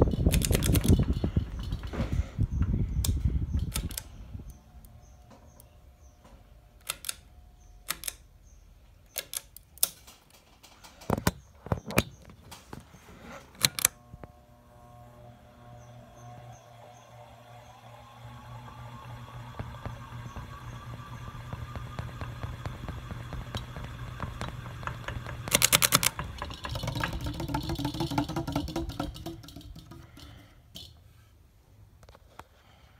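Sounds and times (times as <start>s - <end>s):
ceiling fan air rush: 0.0s - 6.7s
faint motor hum: 0.0s - 9.1s, 12.8s - 30.8s
pull-chain switch clicks: 6.8s - 8.3s.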